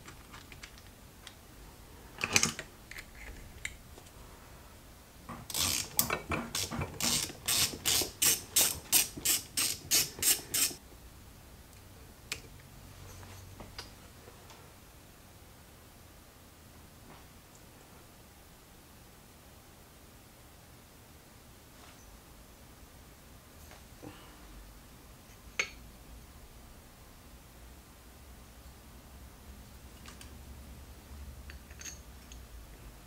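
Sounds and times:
ratchet wrench clicking: 5.5 - 10.8
tools clattering: 31.5 - 32.0.

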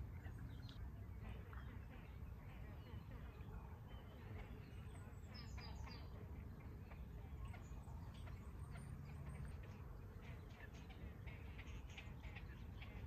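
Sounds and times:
low outdoor rumble: 0.0 - 13.0.

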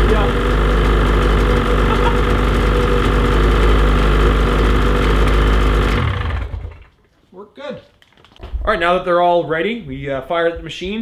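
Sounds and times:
snowmobile engine idling: 0.0 - 6.9.

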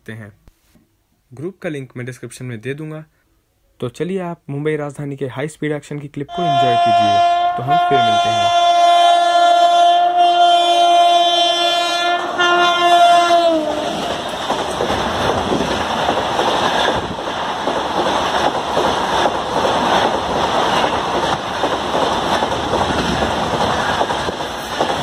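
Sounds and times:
locomotive horn: 6.3 - 14.1
train coaches rushing past: 13.5 - 25.0
wheels knocking over rail joints: 13.7 - 25.0.

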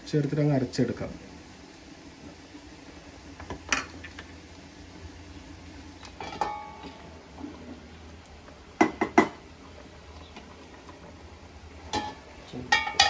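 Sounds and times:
metal kitchenware clinking: 6.2 - 6.9, 11.9 - 13.0.

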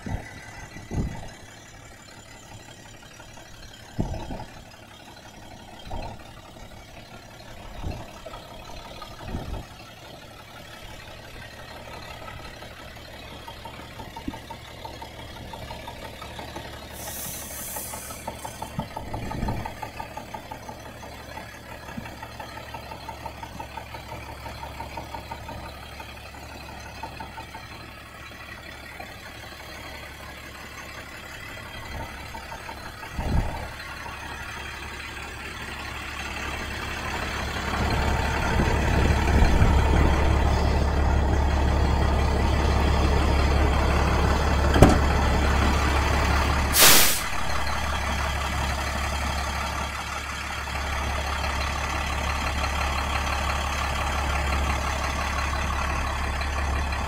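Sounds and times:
diesel engine idling: 0.0 - 57.0
air brake hiss: 16.9 - 18.6, 46.7 - 47.5.

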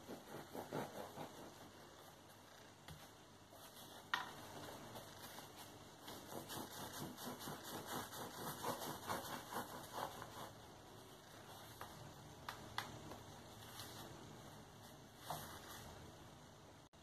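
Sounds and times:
knife sawing bread crust: 0.0 - 1.8, 6.0 - 10.6.

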